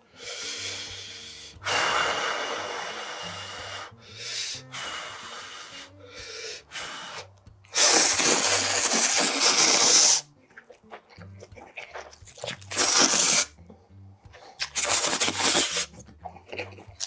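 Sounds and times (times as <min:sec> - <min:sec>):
person blowing on noodles: 0:00.0 - 0:10.3, 0:12.3 - 0:13.6, 0:14.3 - 0:17.0
loud slurp of noodles: 0:07.8 - 0:10.3, 0:12.3 - 0:13.5, 0:14.6 - 0:15.9.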